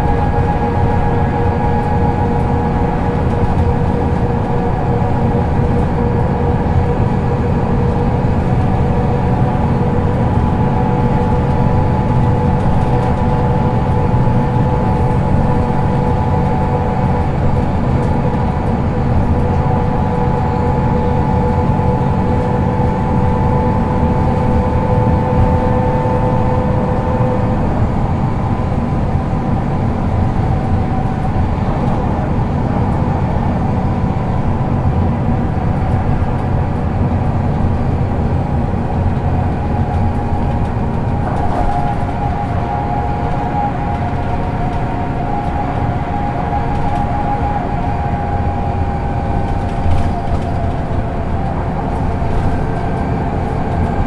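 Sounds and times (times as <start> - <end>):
bus engine and road drone: 0.0 - 54.0
whining tone: 37.4 - 54.0.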